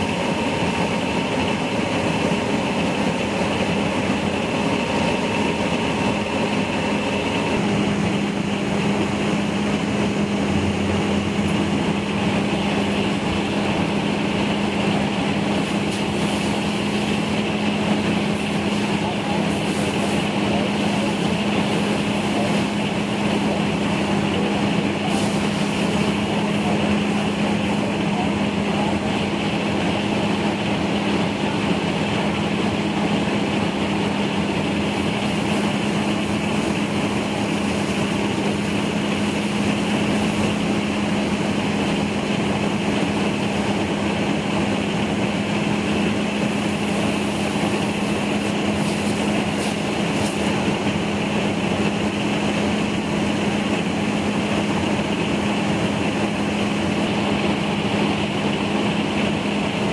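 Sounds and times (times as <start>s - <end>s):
fire engine humming: 0.0s - 59.9s
hose stream spraying water: 11.6s - 57.3s.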